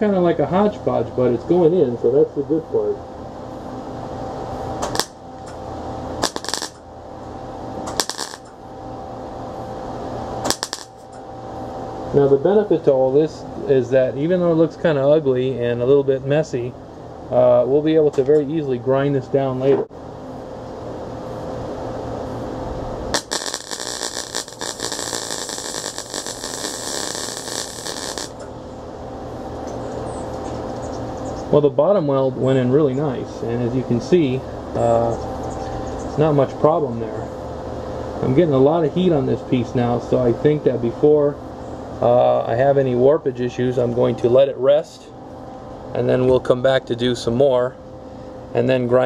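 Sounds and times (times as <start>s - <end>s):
steady hum: 0.0s - 49.0s
welder arc crackling: 4.8s - 5.6s, 6.2s - 6.9s, 7.8s - 8.6s, 10.3s - 11.2s, 23.1s - 28.5s.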